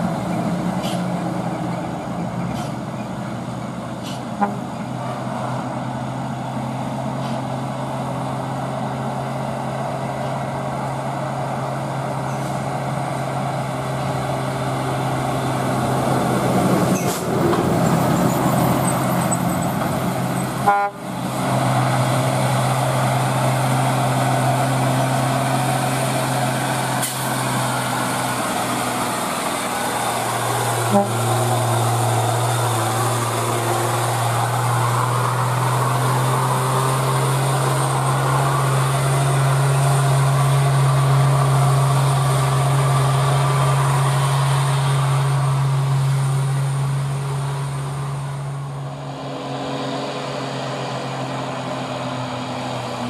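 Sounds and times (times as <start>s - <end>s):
diesel truck engines droning: 0.0s - 53.0s.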